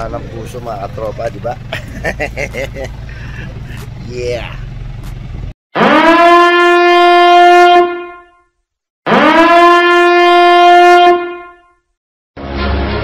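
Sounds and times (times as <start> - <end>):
brassy horn blasts: 5.8 - 8.4, 9.1 - 11.7.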